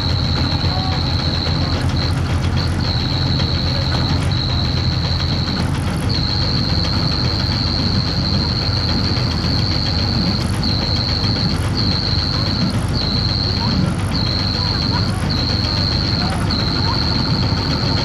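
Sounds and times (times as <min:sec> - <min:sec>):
shrill high note: 0:00.0 - 0:18.0
tractor engine under load: 0:00.0 - 0:18.0.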